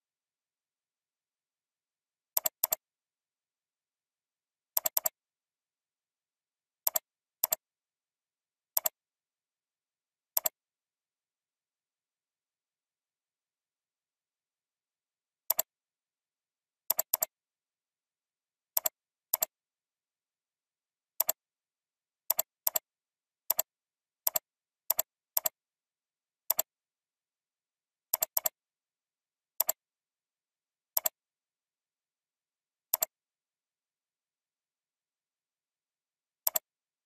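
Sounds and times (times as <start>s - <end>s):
computer mouse clicks: 2.3s - 2.8s, 4.7s - 5.2s, 6.8s - 7.6s, 8.7s - 9.0s, 10.3s - 10.6s, 15.5s - 15.7s, 16.9s - 17.4s, 18.7s - 19.6s, 21.2s - 21.4s, 22.3s - 22.9s, 23.5s - 25.6s, 26.5s - 26.7s, 28.1s - 28.6s, 29.6s - 29.8s, 30.9s - 31.2s, 32.9s - 33.2s, 36.4s - 36.7s.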